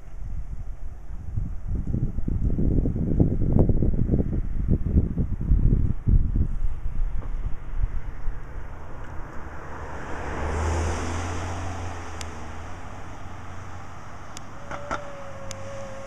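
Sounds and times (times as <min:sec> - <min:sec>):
wind on microphone: 0:00.0 - 0:16.0
car passing: 0:06.5 - 0:16.0.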